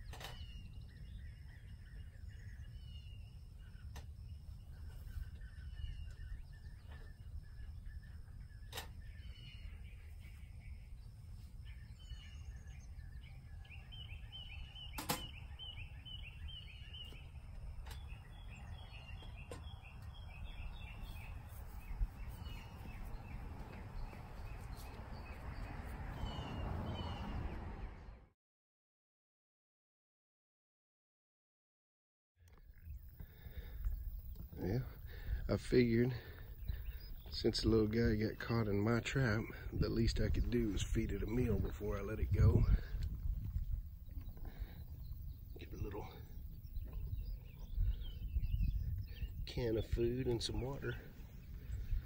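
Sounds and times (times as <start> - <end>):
birds chirping: 0.0 - 28.2, 32.4 - 52.0
sharp clicks or knocks: 15.0 - 15.3
steady low rumble: 32.8 - 52.0.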